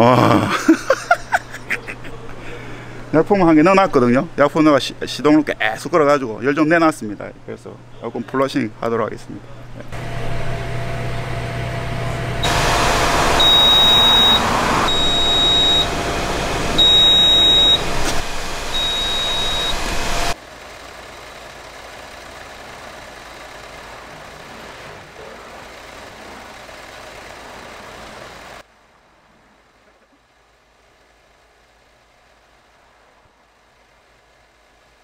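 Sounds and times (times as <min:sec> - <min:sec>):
car engine idling: 0:09.6 - 0:35.0
service machine loud rushing: 0:09.9 - 0:28.6
high beep: 0:13.4 - 0:15.9, 0:16.8 - 0:17.8, 0:18.8 - 0:19.8.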